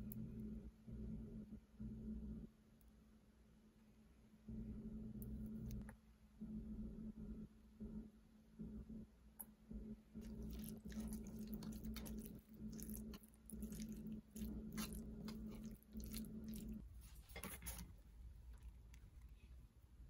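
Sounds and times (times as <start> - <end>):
wet squishing of mashed food: 10.2 - 19.5
spoon scraping and tapping bowl: 10.3 - 17.9.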